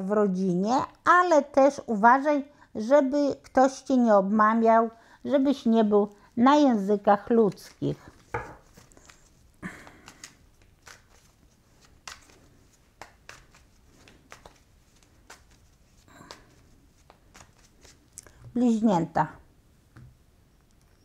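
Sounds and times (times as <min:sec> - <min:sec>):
cards being shuffled: 0:07.5 - 0:18.4.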